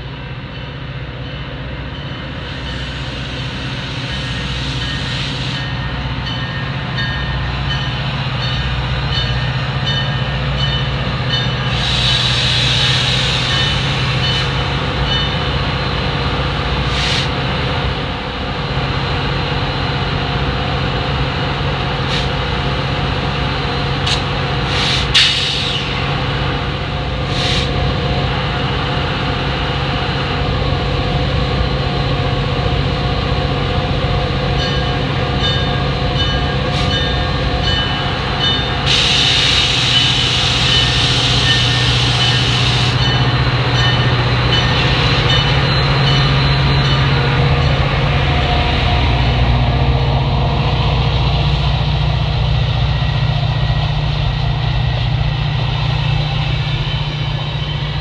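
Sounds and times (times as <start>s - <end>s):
diesel locomotive engine drone: 0.0s - 58.0s
train coaches rolling on rails: 0.0s - 58.0s
loud air hiss: 11.7s - 14.2s, 16.8s - 17.4s, 24.1s - 26.0s, 27.2s - 27.9s, 38.8s - 43.0s.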